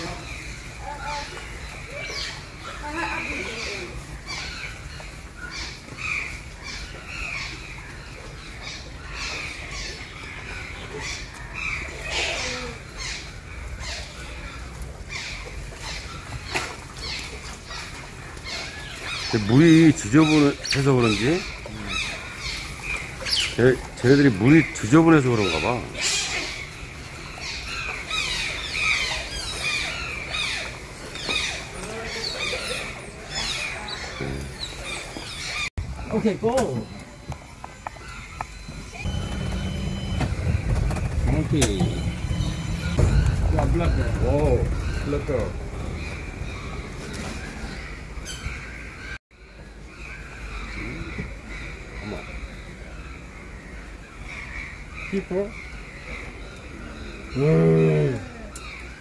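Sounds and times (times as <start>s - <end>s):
otters chirping and squeaking: 0.0s - 49.2s
otters squeaky chirps: 27.3s - 47.0s.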